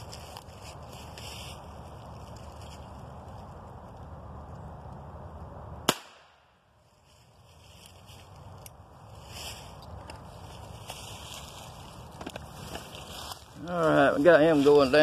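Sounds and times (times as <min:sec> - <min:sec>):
gunshot: 0:05.9 - 0:06.5.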